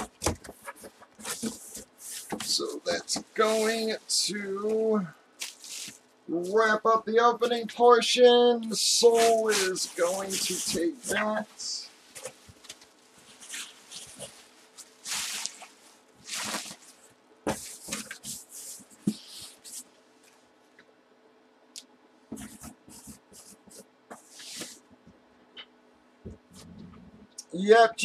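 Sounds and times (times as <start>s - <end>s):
marker scrawling on cardboard: 22.3s - 24.8s.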